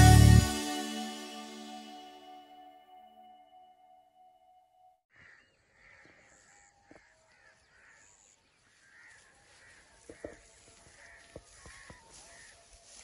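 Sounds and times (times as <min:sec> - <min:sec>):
crows cawing: 0:05.1 - 0:12.7.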